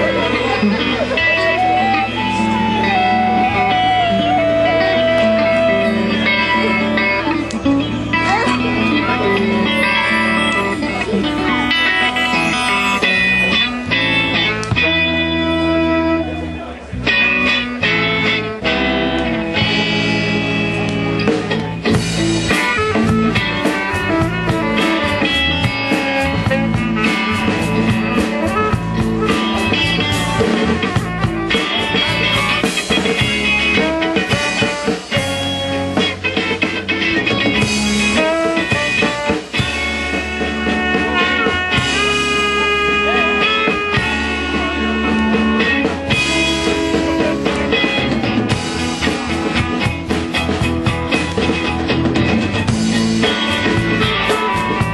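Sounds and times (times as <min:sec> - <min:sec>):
live band with guitar and drums: 0:00.0 - 0:54.9.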